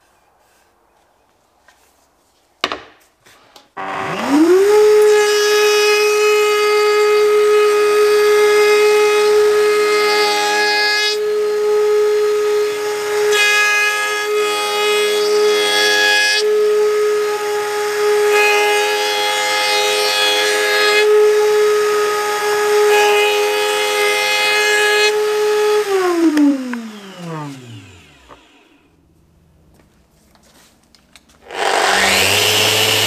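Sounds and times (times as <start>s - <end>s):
router bit cutting wood: 3.8s - 28.9s, 31.4s - 33.0s
router whining: 3.8s - 29.0s, 31.4s - 33.0s
motor winding down: 25.8s - 28.9s, 31.5s - 33.0s.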